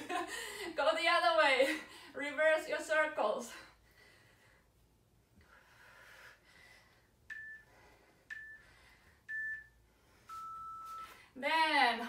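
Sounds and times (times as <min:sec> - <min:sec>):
timer short beeps: 0:07.3 - 0:07.7, 0:08.3 - 0:08.7, 0:09.3 - 0:11.2.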